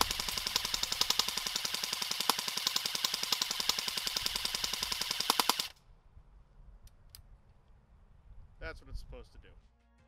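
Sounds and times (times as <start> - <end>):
airsoft gun full-auto burst: 0.0 - 5.8.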